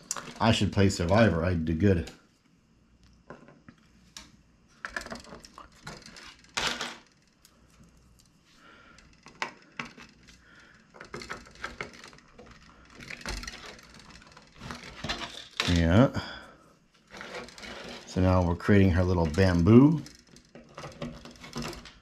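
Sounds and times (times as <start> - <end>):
plastic scrape: 17.1 - 18.2.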